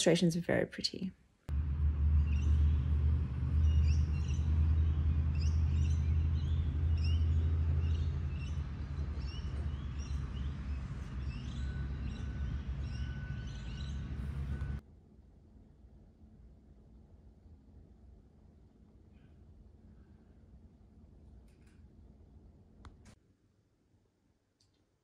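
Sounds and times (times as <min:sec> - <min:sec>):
low rumble: 0:01.5 - 0:15.5
small birds chirping: 0:02.0 - 0:14.8.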